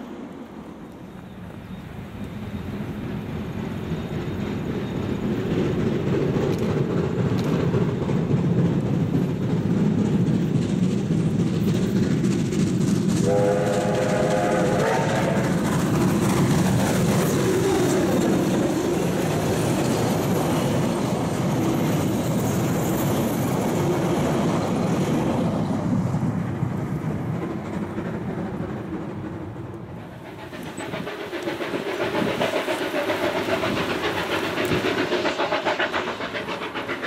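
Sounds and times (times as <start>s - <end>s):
steam locomotive approaching: 0.0s - 37.0s
wheels on rails: 0.0s - 37.0s
steam whistle: 13.2s - 15.6s.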